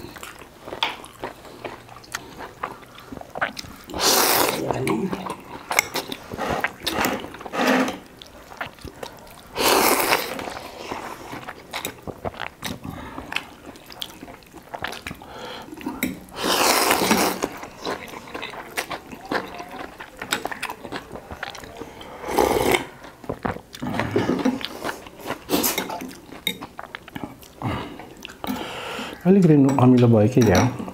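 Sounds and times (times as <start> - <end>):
chewing: 0.0 - 30.9
loud noodle slurps: 3.4 - 4.7, 6.1 - 8.1, 9.5 - 11.5, 16.3 - 17.8, 22.1 - 23.0
cutlery clicking on glass bowls: 29.6 - 30.8.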